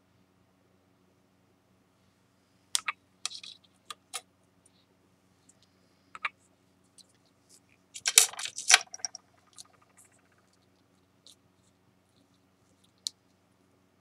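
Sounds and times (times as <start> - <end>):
ceramic pieces clicking: 2.8 - 4.0, 8.0 - 10.0.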